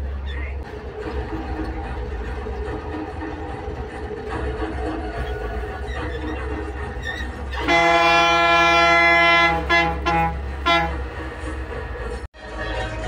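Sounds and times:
bus engine: 0.0 - 13.0
road noise: 0.0 - 13.0
bus horn blasts: 7.5 - 11.2.

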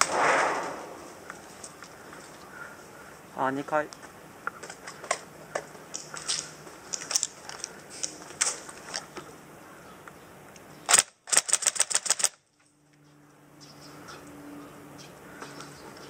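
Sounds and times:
airsoft rifle firing: 0.0 - 1.1
clicks and rustles of gear: 4.0 - 9.3, 10.9 - 12.7.

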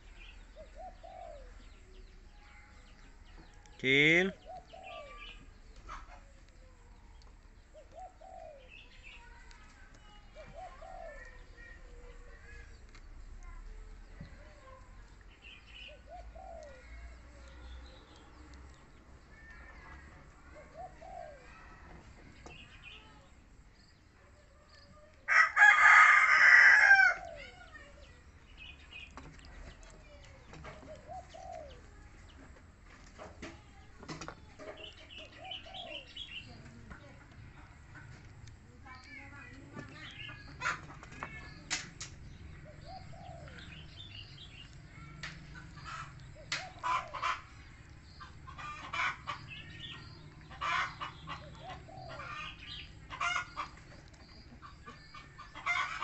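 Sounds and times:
small birds chirping: 0.0 - 56.0
dove cooing: 0.6 - 1.7, 7.7 - 8.7, 10.4 - 11.4.

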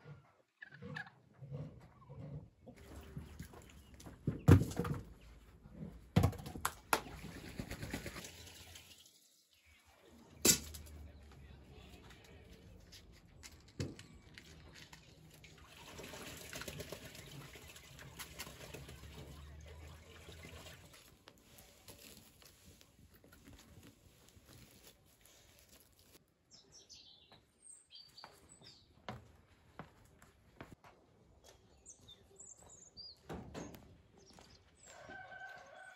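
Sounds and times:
sticks rustling: 20.7 - 26.2
birds chirping: 26.4 - 29.8, 31.3 - 35.9.

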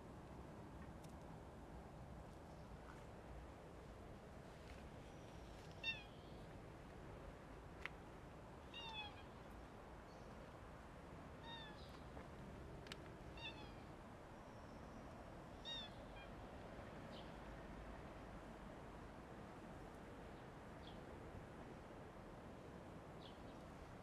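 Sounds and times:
cat meowing faintly: 5.8 - 6.4, 8.7 - 9.4, 13.4 - 13.9.

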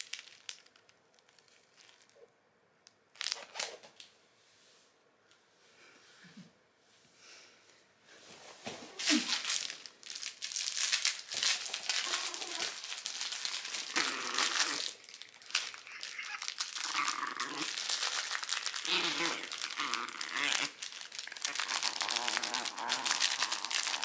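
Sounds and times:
fabric dog toy crackling: 0.0 - 2.2, 8.9 - 24.0.

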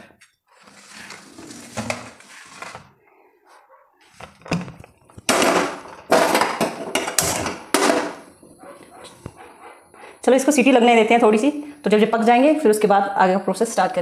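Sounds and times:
pot scraping and clattering on metal: 0.6 - 2.9.

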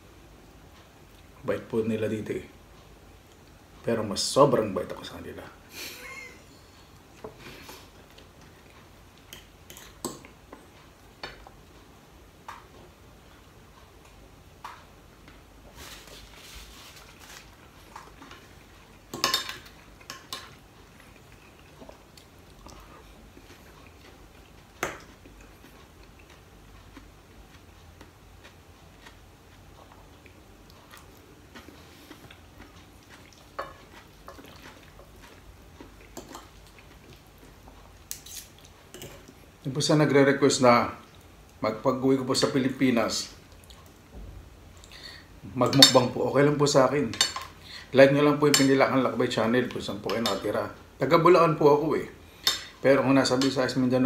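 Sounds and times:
chewing: 12.5 - 39.6, 43.4 - 44.0
cutlery clinking on plate: 19.1 - 20.5.

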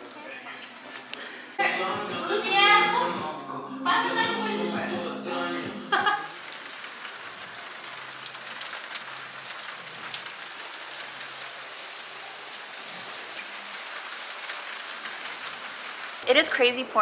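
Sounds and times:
heavy rain pouring: 5.9 - 16.6
raindrops ticking: 6.0 - 16.6.

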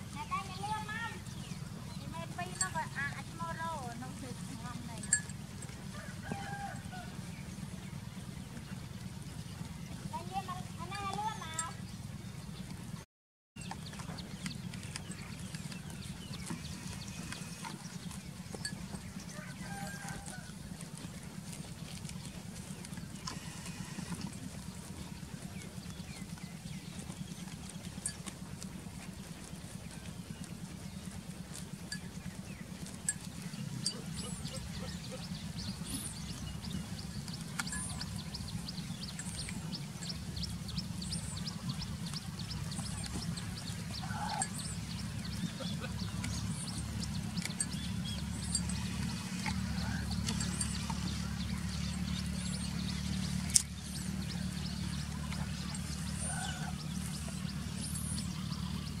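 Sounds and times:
birds chirping: 0.0 - 13.0, 13.6 - 59.0
goat tearing and chewing grass: 0.0 - 13.0, 13.6 - 59.0
steady low rumble: 20.3 - 59.0.

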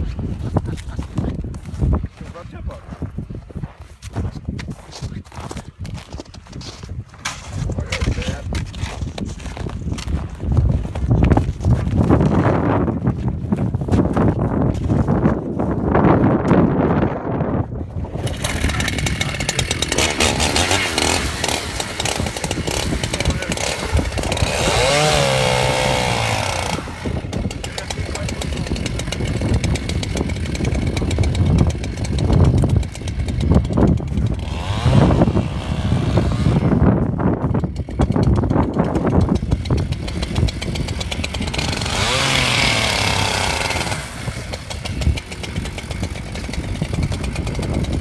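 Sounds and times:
chainsaw cutting into ice: 18.0 - 48.0.

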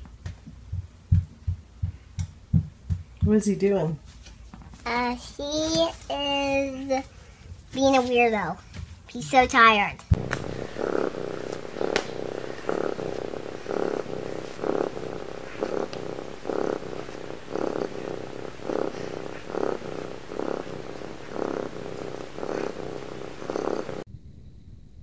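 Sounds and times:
cat purring: 10.2 - 24.1.

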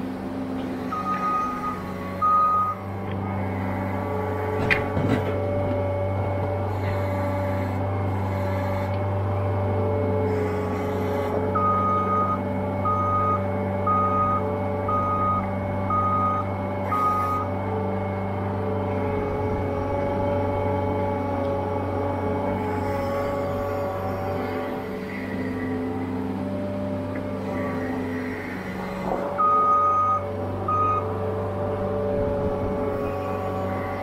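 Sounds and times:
diesel engine running: 0.0 - 34.0
backup alarm beeping: 0.9 - 2.8, 11.6 - 17.4, 29.4 - 31.0.

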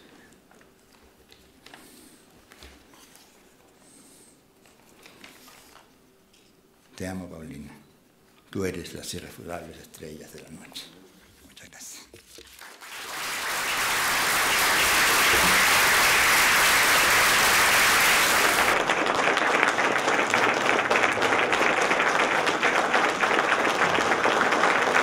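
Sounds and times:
roomful of people applauding: 12.5 - 25.0.

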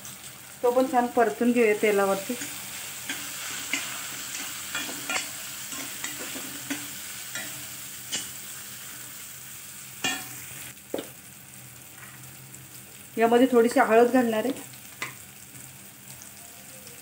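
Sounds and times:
masala sizzling in oil: 0.0 - 17.0
steel spatula scraping a pan: 2.2 - 8.5.

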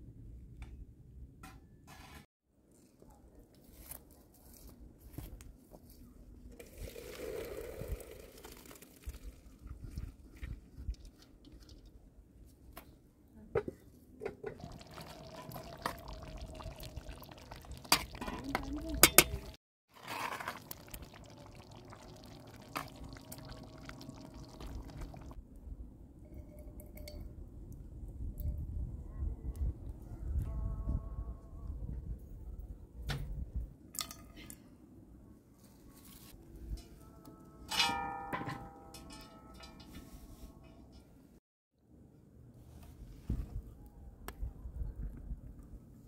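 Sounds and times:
liquid pouring into pot: 6.7 - 9.3, 14.6 - 25.4
metal spoon clinking in pot: 37.7 - 40.0.

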